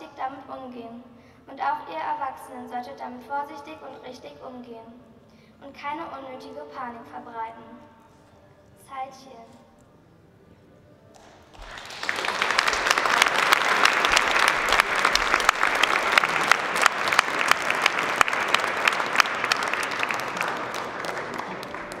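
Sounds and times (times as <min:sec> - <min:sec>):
audience clapping: 0:11.2 - 0:22.0.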